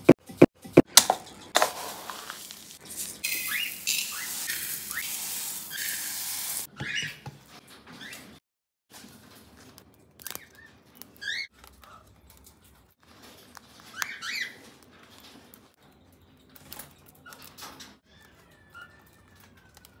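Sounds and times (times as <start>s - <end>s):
cockatiels chirping: 13.9s - 14.7s.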